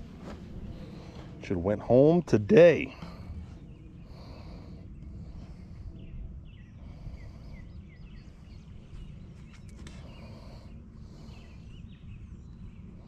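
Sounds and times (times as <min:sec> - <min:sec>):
birds chirping: 0:00.0 - 0:13.0
wind rumble on microphone: 0:00.0 - 0:13.0.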